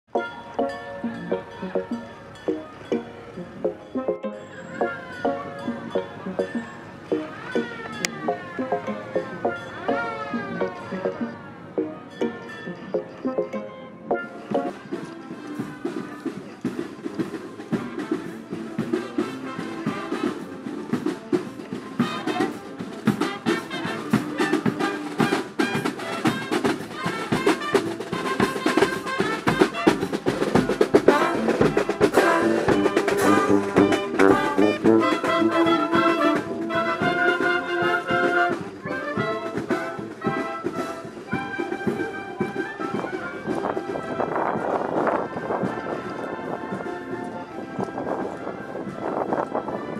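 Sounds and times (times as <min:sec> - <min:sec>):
brass horns playing tune: 0:00.1 - 0:16.0, 0:17.7 - 0:49.9
snare drums: 0:14.1 - 0:48.0
bass drum beat: 0:28.4 - 0:35.6.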